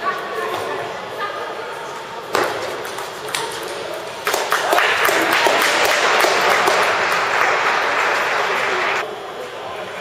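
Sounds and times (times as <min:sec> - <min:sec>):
hand clapping: 0:04.2 - 0:09.0.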